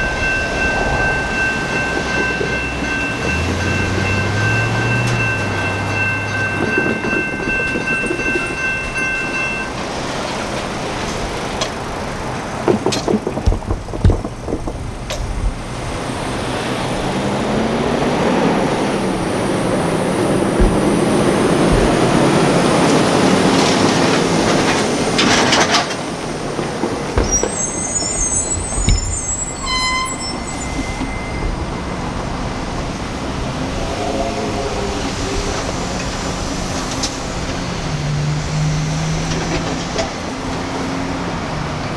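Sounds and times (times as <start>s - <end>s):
train wheels rumbling on rail: 0.0s - 41.9s
high-pitched wheel squeal: 27.2s - 32.4s.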